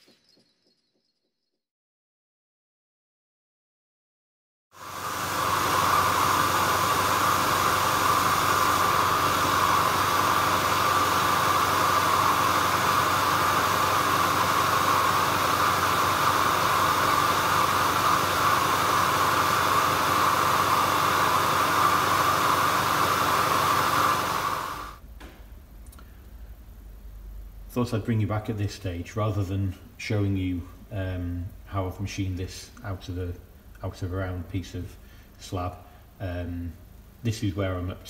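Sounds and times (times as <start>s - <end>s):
workshop vacuum hissing: 4.8s - 25.0s.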